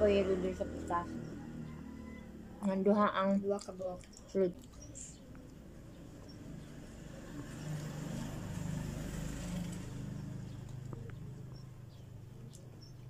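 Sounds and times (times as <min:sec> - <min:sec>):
vehicle engine passing by: 0:00.0 - 0:02.6, 0:05.9 - 0:12.5.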